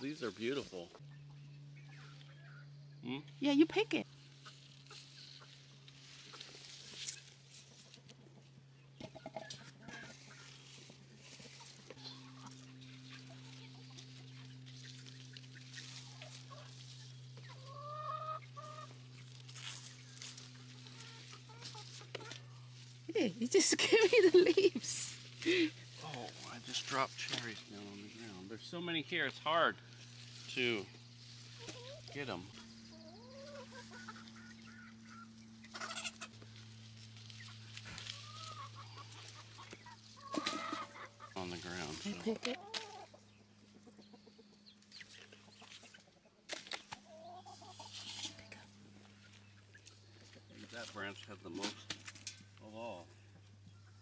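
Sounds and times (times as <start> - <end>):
steady low hum: 0.0 - 54.0
leaves and branches rustling: 3.8 - 8.7, 9.5 - 43.2, 44.8 - 53.7
chicken calling: 9.0 - 22.8, 31.4 - 46.2, 47.0 - 50.4.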